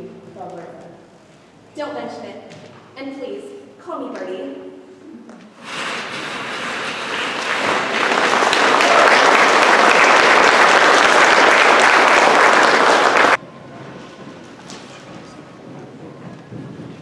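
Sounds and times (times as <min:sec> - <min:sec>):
audience applauding: 0:05.7 - 0:13.4.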